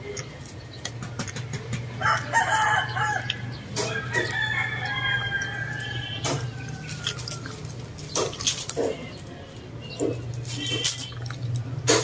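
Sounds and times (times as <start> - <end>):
rooster crowing: 2.0 - 7.7.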